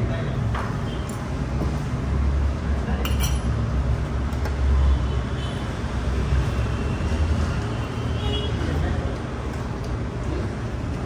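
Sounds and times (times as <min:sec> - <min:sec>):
street traffic rumble: 0:00.0 - 0:11.0
spoons clinking on plates: 0:03.0 - 0:03.6.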